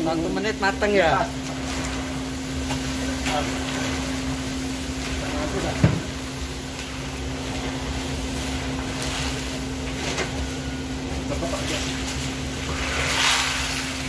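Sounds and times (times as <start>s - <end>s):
low machine hum: 0.0s - 14.0s
oil frying hiss: 0.0s - 14.0s
paddle scraping and knocking wok: 11.8s - 14.0s.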